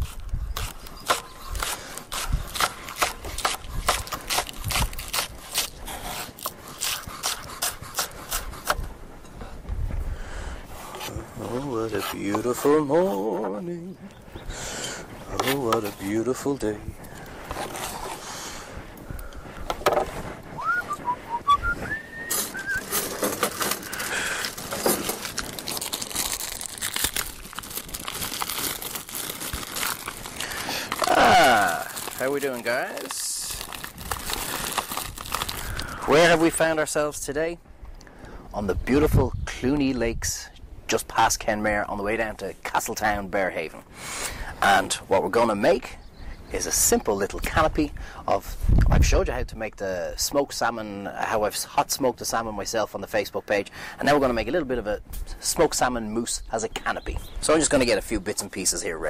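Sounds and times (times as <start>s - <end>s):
crinkling and rustling: 15.2s - 21.0s, 21.8s - 36.6s
short high whistled notes: 20.6s - 23.0s.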